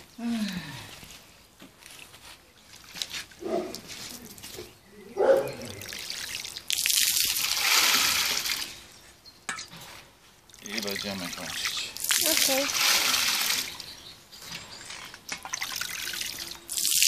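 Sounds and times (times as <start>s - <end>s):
faint water trickling: 1.8s - 17.0s
water splashing into tank: 5.6s - 8.8s, 10.5s - 13.9s, 14.9s - 17.0s.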